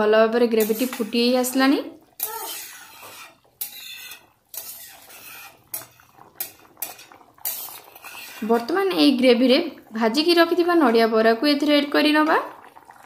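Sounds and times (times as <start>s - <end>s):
ladle scraping pan: 0.6s - 8.8s.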